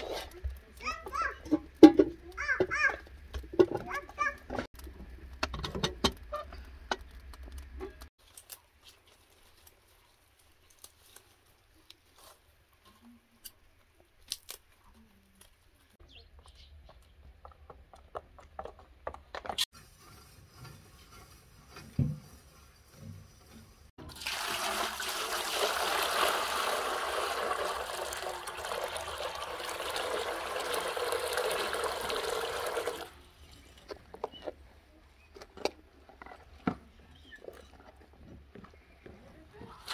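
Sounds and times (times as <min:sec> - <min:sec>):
water pouring into metal basin: 0:24.0 - 0:33.2.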